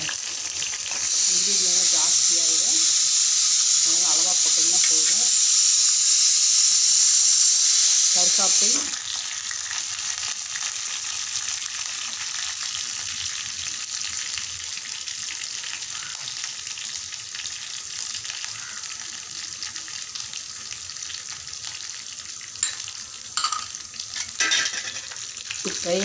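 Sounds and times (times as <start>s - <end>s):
shallots sizzling in oil: 0.0s - 26.0s.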